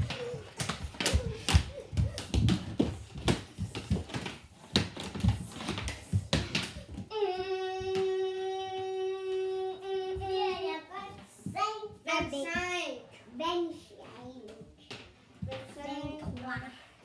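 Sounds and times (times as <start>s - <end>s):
hockey sticks clacking on floor: 0.0s - 9.0s, 14.2s - 17.0s.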